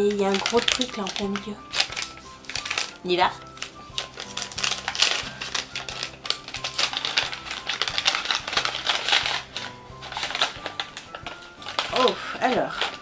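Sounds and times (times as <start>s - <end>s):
paper wrapping tearing: 0.0s - 13.0s.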